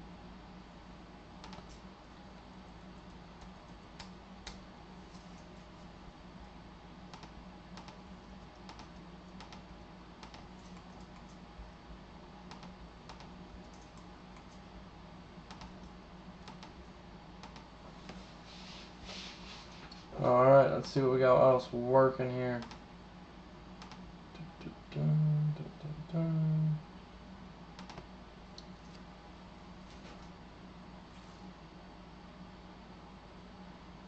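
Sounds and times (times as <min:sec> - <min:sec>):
low steady hum: 0:00.0 - 0:34.0
keyboard typing clicks: 0:01.4 - 0:01.8, 0:07.1 - 0:08.0, 0:08.6 - 0:09.6, 0:10.2 - 0:11.4, 0:12.5 - 0:14.6, 0:15.5 - 0:16.8, 0:17.4 - 0:17.7, 0:23.8 - 0:24.0, 0:27.8 - 0:28.1.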